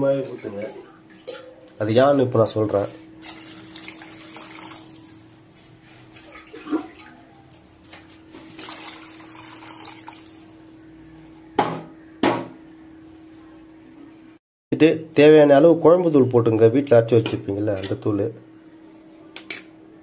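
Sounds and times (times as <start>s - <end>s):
water pouring into pot: 3.2s - 5.2s, 8.6s - 10.7s
faint steady hum: 8.6s - 20.0s.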